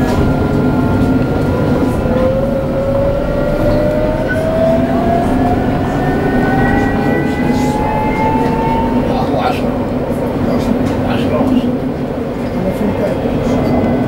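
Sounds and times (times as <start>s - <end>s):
traction motor whine: 0.0s - 10.0s
tram rumbling on rails: 0.0s - 14.0s.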